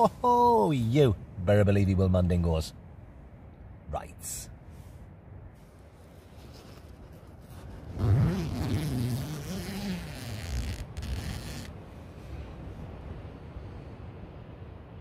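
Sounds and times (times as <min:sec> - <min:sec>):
zip being drawn: 0:07.9 - 0:11.7.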